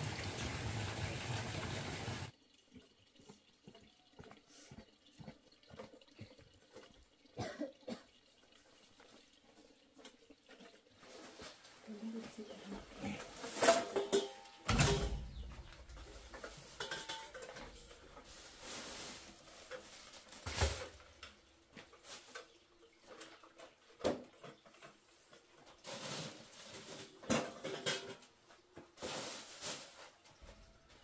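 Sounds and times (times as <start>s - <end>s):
plastic bag rustling: 11.0s - 21.1s, 29.0s - 30.6s.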